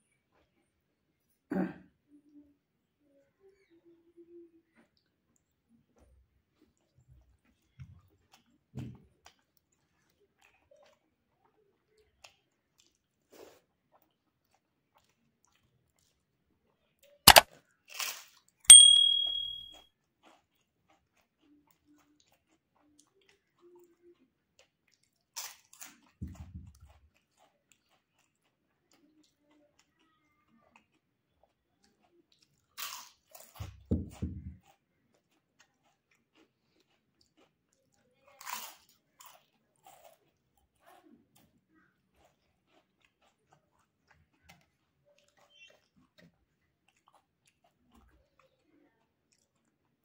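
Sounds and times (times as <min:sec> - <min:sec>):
crunching and chewing: 0:04.7 - 0:18.6, 0:20.0 - 0:50.0
clink on steel dish: 0:18.7 - 0:19.7.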